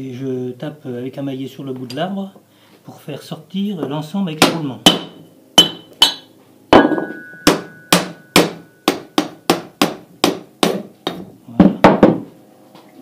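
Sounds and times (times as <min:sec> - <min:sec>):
mallet striking metal shaft: 0:04.4 - 0:10.8
faint metallic ring: 0:05.8 - 0:08.8.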